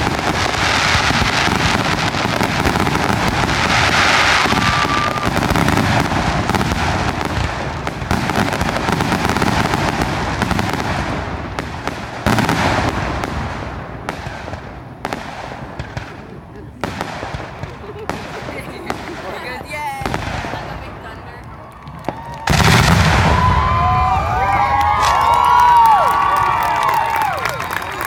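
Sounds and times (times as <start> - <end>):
firework whistle: 0.0 - 11.2
loud firework bang: 0.0 - 19.4, 22.1 - 25.6
firework shells bursting: 0.0 - 23.8
firework crackling: 0.0 - 28.0.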